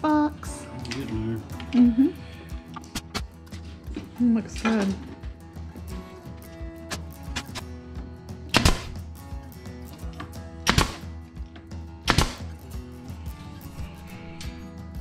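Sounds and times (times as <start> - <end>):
background music: 0.0 - 15.0
staple gun firing into wood: 8.5 - 9.0, 10.7 - 11.1, 12.1 - 12.5.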